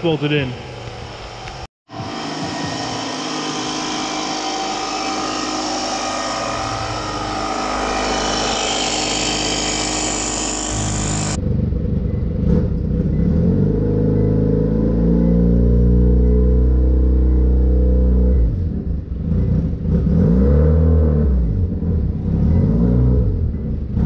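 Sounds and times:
air compressor buzzing: 0.7s - 11.4s.

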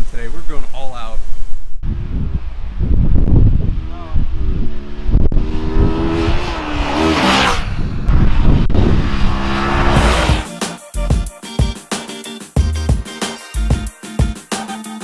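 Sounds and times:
motorcycle passing by: 2.9s - 10.5s.

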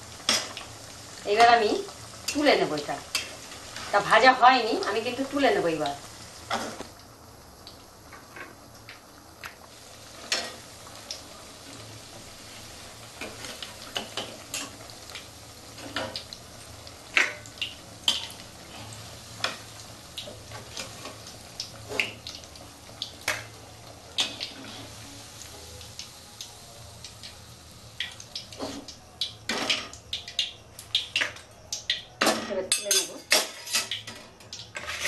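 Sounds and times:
hot oil sizzling: 0.0s - 35.0s
metal spatula scraping pan: 34.8s - 35.0s.

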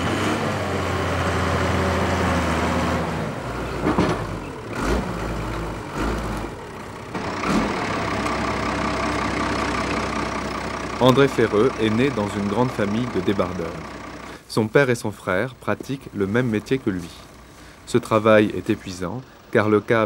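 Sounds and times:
diesel engine driving past: 0.0s - 14.4s
engine knocks and low thumps: 0.0s - 14.4s, 15.1s - 20.0s.

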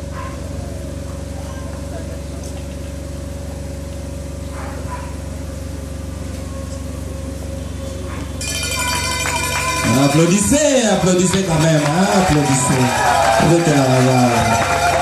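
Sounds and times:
thin steady whine: 5.4s - 15.0s.

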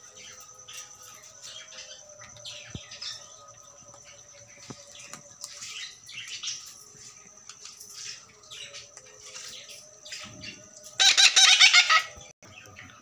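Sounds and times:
parrots harsh rapid calls: 11.0s - 12.2s.

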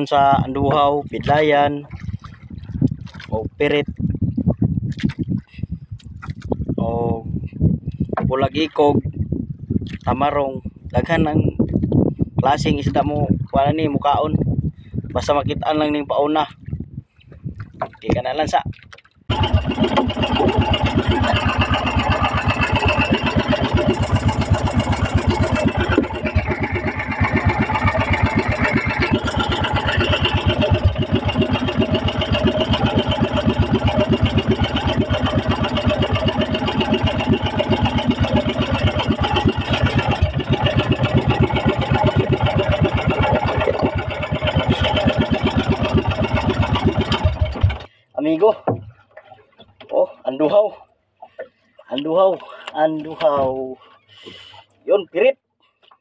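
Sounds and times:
boat engine running: 0.0s - 14.0s, 19.3s - 49.9s.

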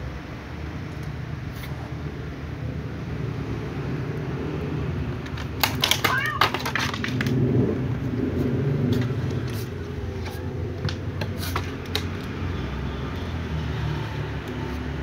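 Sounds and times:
cats crunching dry kibble: 5.3s - 7.6s.

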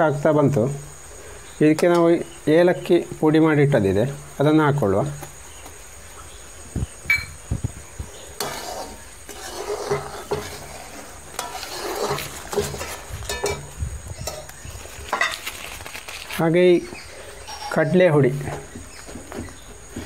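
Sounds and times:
ladle scraping a metal pan: 8.3s - 15.4s, 17.2s - 18.0s.

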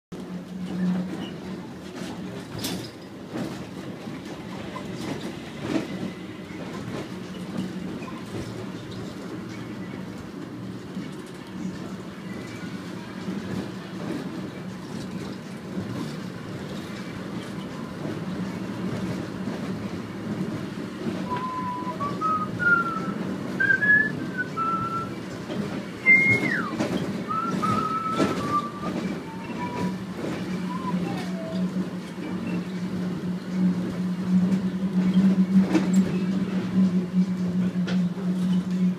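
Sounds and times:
train car rumble and hum: 0.1s - 38.9s
person whistling a tune: 21.3s - 25.1s, 26.0s - 29.9s.

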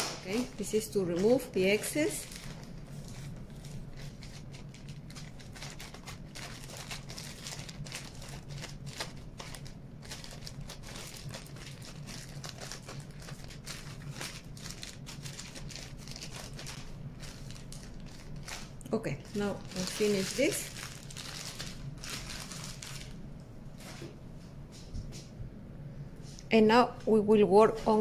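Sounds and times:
plastic bag crinkling: 0.0s - 24.0s.

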